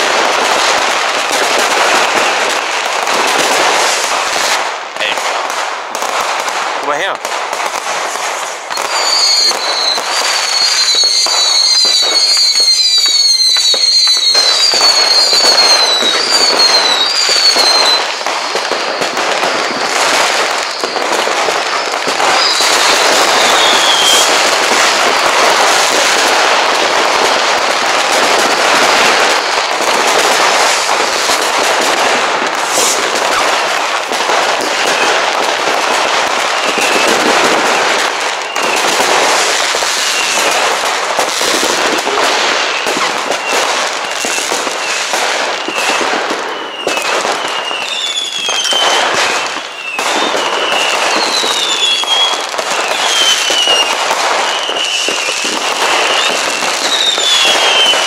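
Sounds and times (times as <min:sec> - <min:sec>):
fireworks banging and crackling: 0:00.0 - 0:58.0
whistling firework: 0:00.0 - 0:58.0.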